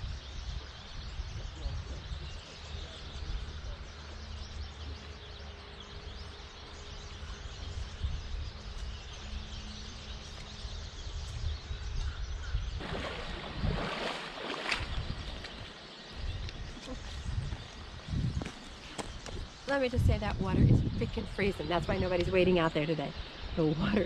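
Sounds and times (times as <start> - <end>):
wind on microphone: 0.0 - 3.9, 7.0 - 24.0
stream flowing: 12.8 - 16.9
person wading through water: 12.8 - 17.2.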